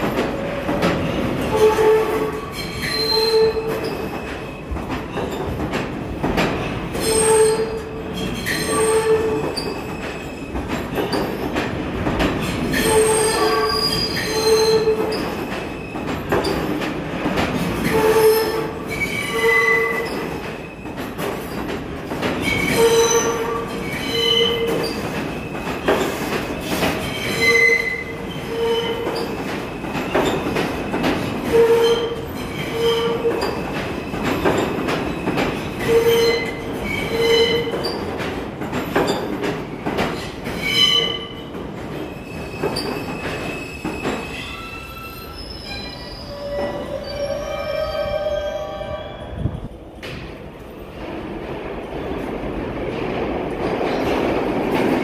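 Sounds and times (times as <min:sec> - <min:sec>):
train wheels squealing: 0:01.6 - 0:05.4, 0:06.9 - 0:11.4, 0:12.7 - 0:16.6, 0:17.8 - 0:21.6, 0:22.4 - 0:38.1, 0:39.0 - 0:41.5, 0:42.1 - 0:49.8.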